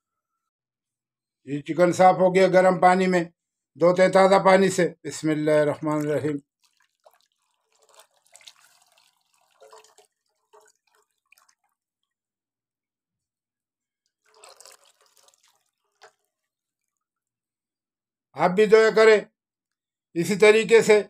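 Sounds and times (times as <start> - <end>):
water splashing and dripping: 6.0 - 12.2, 14.1 - 17.0.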